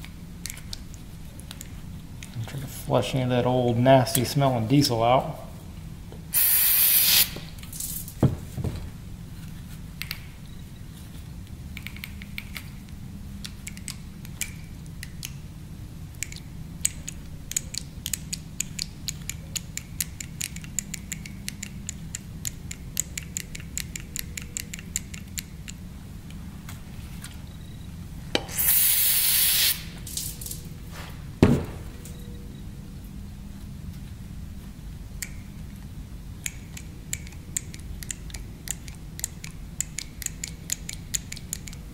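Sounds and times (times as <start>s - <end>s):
low steady hum: 0.0s - 6.4s, 7.3s - 41.9s
aerosol spray hiss: 6.4s - 7.5s, 28.5s - 30.0s.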